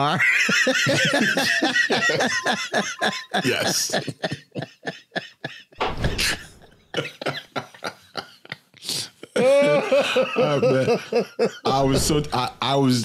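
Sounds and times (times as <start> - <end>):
men laughing and wheezing: 0.0 - 11.8.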